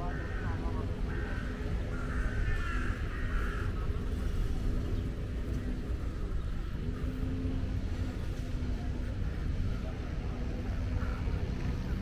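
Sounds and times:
bird harsh calls: 0:00.0 - 0:04.0.

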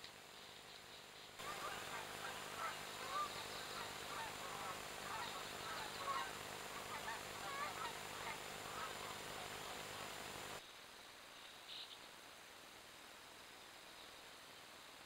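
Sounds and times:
geese honking: 0:01.4 - 0:10.6.

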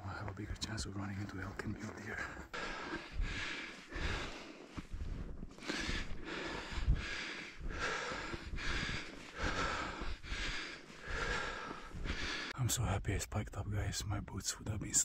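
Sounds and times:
man breathing hard: 0:02.5 - 0:12.6.

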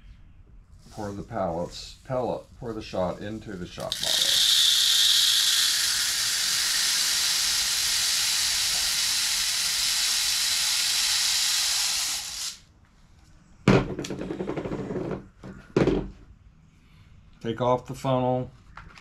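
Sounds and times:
lead pellets pouring through funnel: 0:03.7 - 0:12.6.

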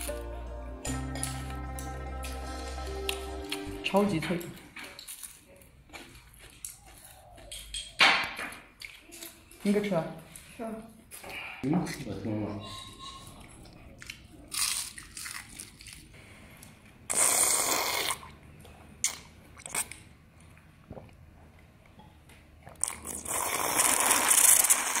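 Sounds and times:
crunching and chewing: 0:04.5 - 0:09.7, 0:13.4 - 0:20.7, 0:22.6 - 0:25.0
slurping soup: 0:17.0 - 0:18.4, 0:22.7 - 0:25.0.

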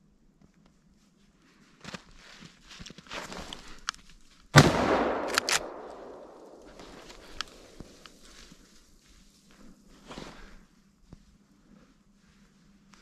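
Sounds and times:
rustling and steps in snow: 0:00.7 - 0:04.5, 0:05.6 - 0:13.0
rifle shot echoing: 0:04.6 - 0:07.8
sharp clicks: 0:04.9 - 0:08.2.

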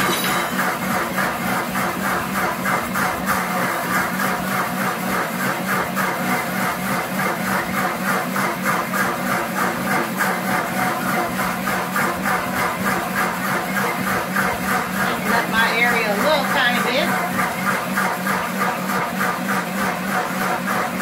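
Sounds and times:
blender motor churning: 0:00.0 - 0:21.0.

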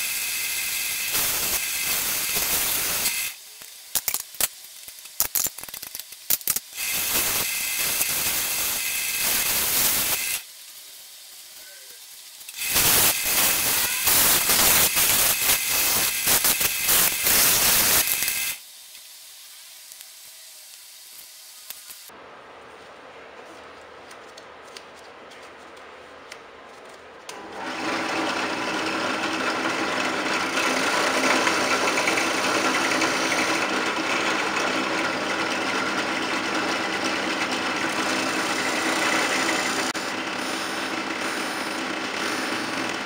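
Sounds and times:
drill press humming: 0:27.3 - 0:43.0.

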